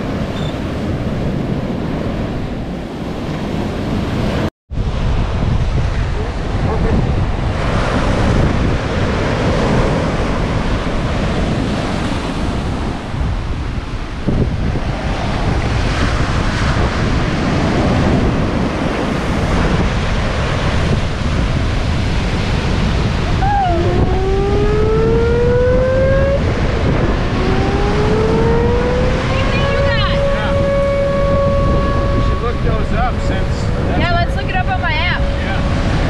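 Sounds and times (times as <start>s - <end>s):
wind buffeting microphone: 0.0s - 36.0s
surf breaking on beach: 3.2s - 25.2s
rising whine: 22.7s - 36.0s.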